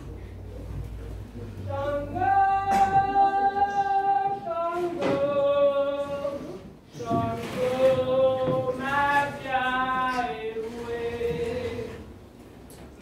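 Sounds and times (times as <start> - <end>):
woman singing unaccompanied: 1.6 - 12.1.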